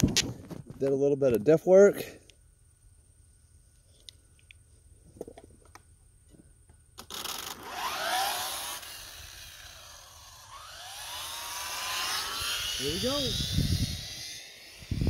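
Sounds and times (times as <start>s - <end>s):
rc car motor whining: 7.0s - 15.0s.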